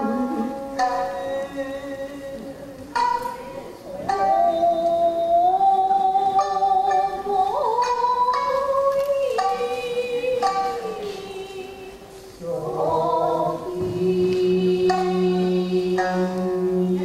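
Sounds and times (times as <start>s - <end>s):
shamisen plucks: 0.0s - 17.0s
voices singing a sliding line: 3.9s - 17.0s.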